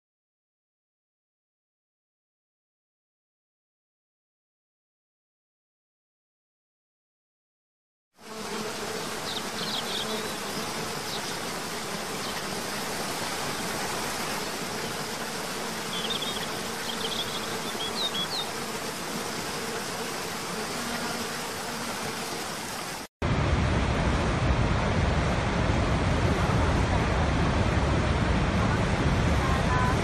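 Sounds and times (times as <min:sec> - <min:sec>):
waterfall rushing and splashing: 0:22.5 - 0:30.0.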